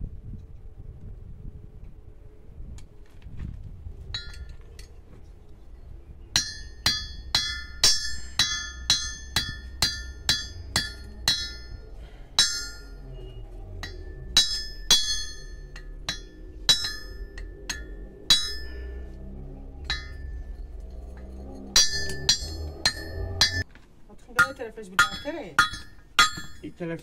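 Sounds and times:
hammer striking metal: 6.3s - 13.1s, 13.7s - 23.6s, 24.4s - 26.7s.

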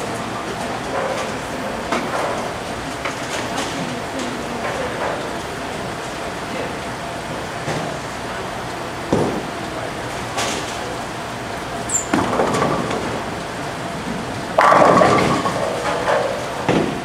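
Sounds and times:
bowling alley background noise: 0.0s - 17.0s
bowling pins crashing: 12.1s - 13.3s, 14.5s - 17.0s
bowling ball rolling on lane: 14.1s - 17.0s.

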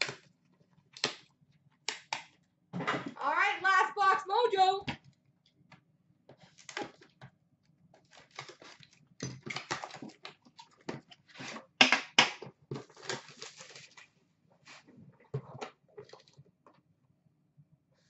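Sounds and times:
packaging rustling and scraping: 12.7s - 14.9s.

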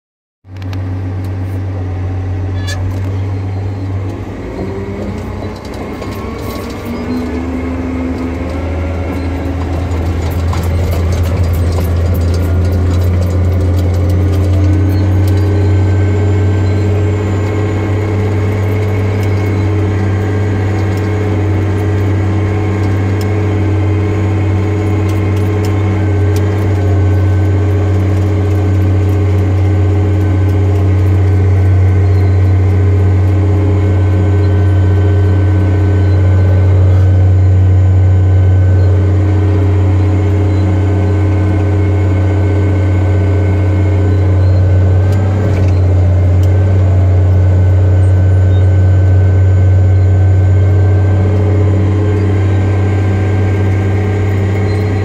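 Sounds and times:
bulldozer diesel engine drone: 0.5s - 55.0s
clicks and rattles: 4.9s - 15.8s.

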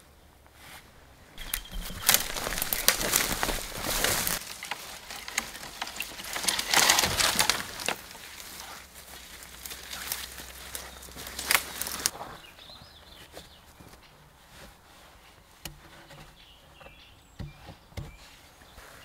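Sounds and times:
leaves rustling: 0.5s - 19.0s
branches and twigs snapping: 1.4s - 12.5s.

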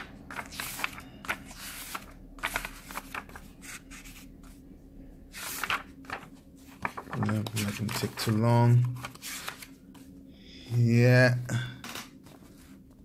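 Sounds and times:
book pages turning: 0.0s - 4.6s, 5.3s - 10.1s, 12.2s - 13.0s
faint low hum: 0.0s - 13.0s.

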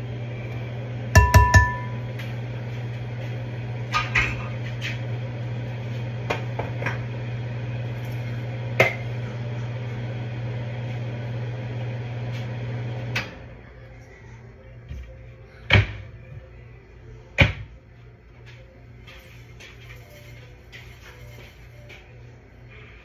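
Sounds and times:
exhaust fan humming: 0.0s - 23.0s
metal spoon clinking on pots: 1.2s - 2.0s.

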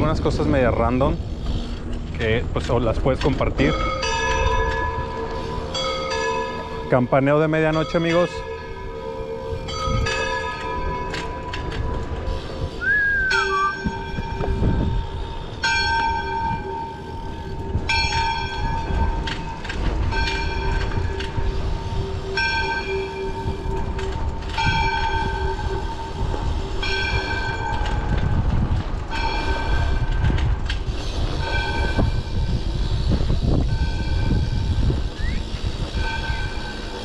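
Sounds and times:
bike tyres rumbling: 0.0s - 7.4s, 8.0s - 37.0s
wind rumble: 0.0s - 37.0s
church bell tolling: 3.5s - 12.0s, 13.3s - 28.1s.

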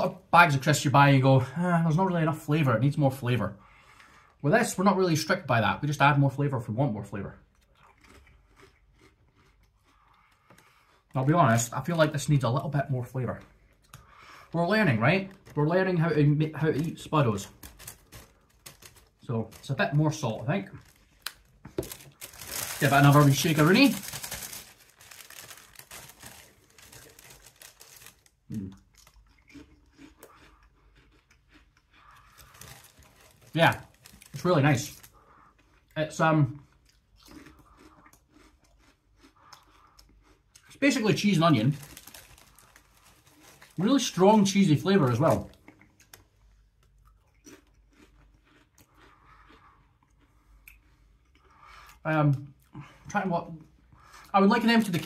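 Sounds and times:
crisps crunched: 14.8s - 30.4s, 32.1s - 35.2s, 40.2s - 46.3s, 54.5s - 55.0s
paper bag rustling and crinkling: 16.8s - 28.4s, 32.4s - 35.1s, 41.2s - 45.6s.

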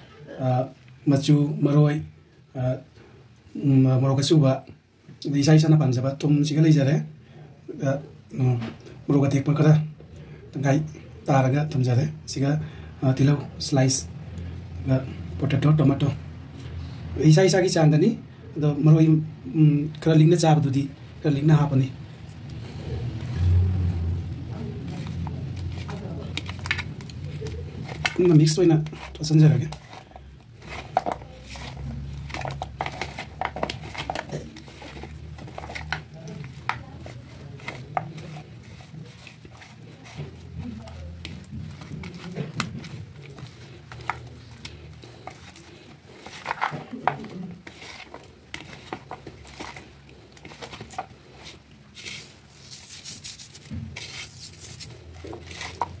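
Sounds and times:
hand squishing raw fish: 21.9s - 56.0s.

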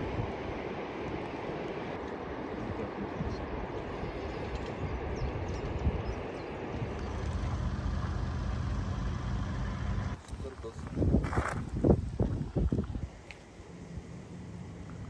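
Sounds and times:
vehicle rumble in motion: 6.6s - 15.0s
steady low hum: 6.8s - 10.2s.

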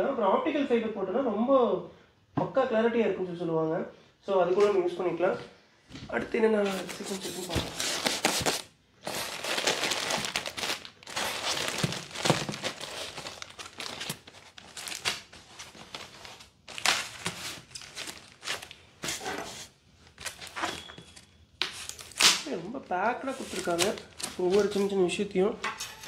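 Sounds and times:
plastic wrapping crinkling: 6.6s - 25.2s.

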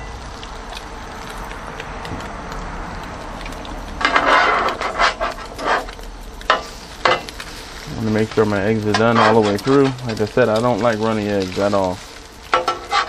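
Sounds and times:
bacon and eggs sizzling: 0.0s - 13.0s
metal spatula scraping griddle: 4.0s - 10.6s, 11.4s - 13.0s.

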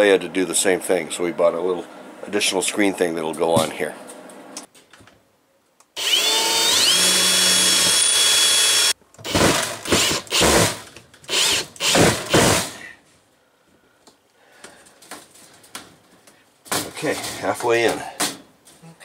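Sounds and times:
cordless drill whining: 6.0s - 12.4s.

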